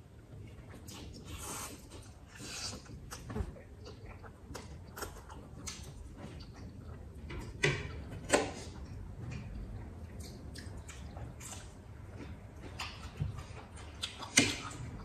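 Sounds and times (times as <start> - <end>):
chewing: 0.2 - 15.0
wet mouth clicks: 13.8 - 14.8.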